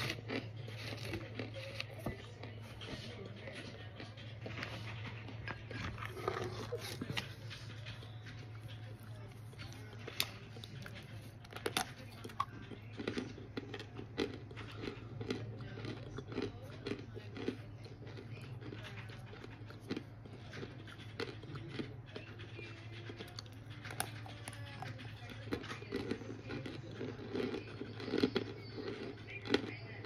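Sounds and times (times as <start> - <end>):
crunchy chewing: 0.0 - 30.0.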